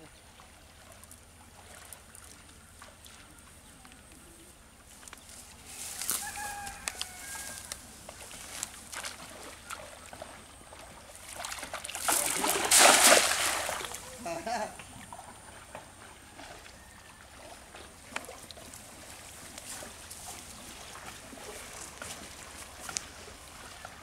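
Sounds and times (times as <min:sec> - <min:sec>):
outdoor ambience: 0:00.0 - 0:24.0
water sloshing: 0:00.2 - 0:03.6, 0:05.5 - 0:24.0
chicken calling: 0:05.9 - 0:07.8.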